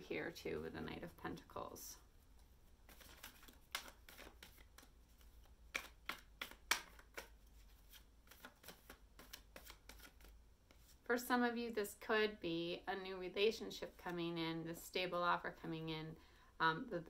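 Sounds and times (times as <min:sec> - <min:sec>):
cards being shuffled: 0:02.1 - 0:11.0.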